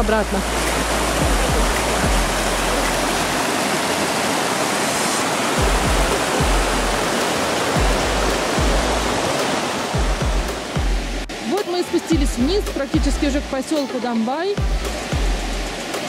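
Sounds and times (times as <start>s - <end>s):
low thumps: 0.0s - 3.4s, 5.6s - 7.0s, 7.8s - 9.2s, 9.9s - 11.3s, 14.6s - 15.6s
stream rushing over rocks: 0.0s - 16.0s.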